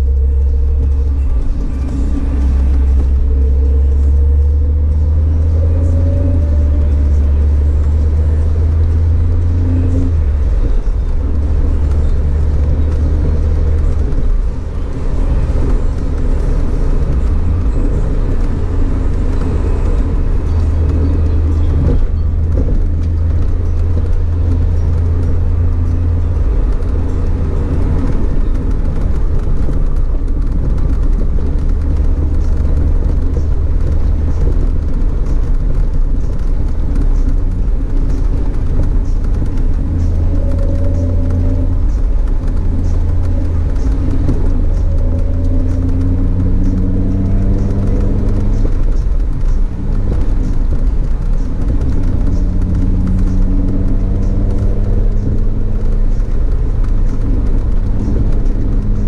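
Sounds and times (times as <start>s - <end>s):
car engine drone: 0.0s - 59.0s
tyre and road noise: 0.0s - 59.0s.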